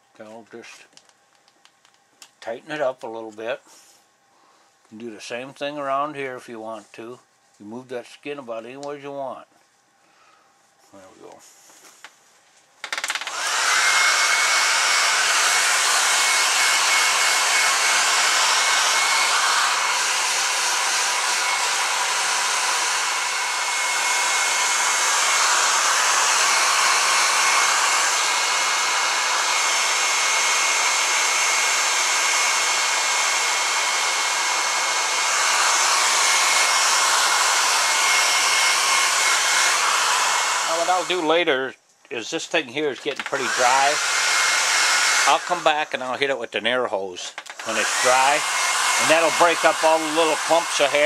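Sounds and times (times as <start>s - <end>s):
hair dryer blowing: 12.8s - 41.5s, 42.5s - 46.1s, 47.4s - 51.0s.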